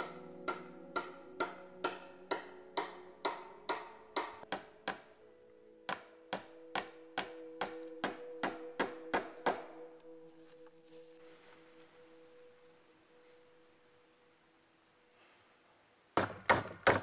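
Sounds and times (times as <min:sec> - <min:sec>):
hand tool striking wood: 0:00.0 - 0:05.1, 0:05.9 - 0:09.7, 0:16.2 - 0:17.0
steady humming tones: 0:00.0 - 0:16.4.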